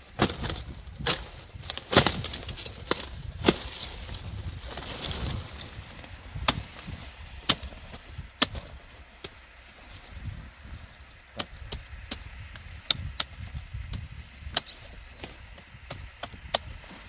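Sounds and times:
leaves rustling: 0:00.0 - 0:11.6
knife snapping through stalks: 0:00.1 - 0:05.5, 0:06.3 - 0:09.4.

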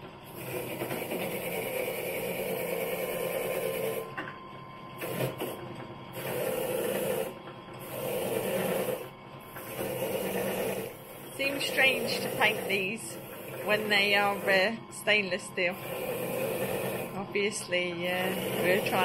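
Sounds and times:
wire brush scrubbing metal: 0:18.1 - 0:19.0.

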